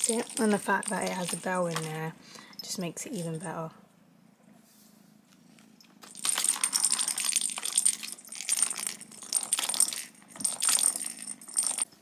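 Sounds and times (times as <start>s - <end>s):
plastic balls rattling in track: 0.0s - 2.1s, 6.0s - 12.0s
bell jingling: 0.0s - 3.4s, 6.0s - 12.0s.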